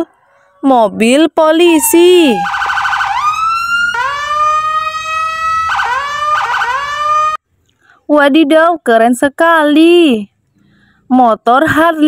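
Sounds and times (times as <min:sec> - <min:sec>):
police siren wailing and warbling: 0:00.0 - 0:07.4.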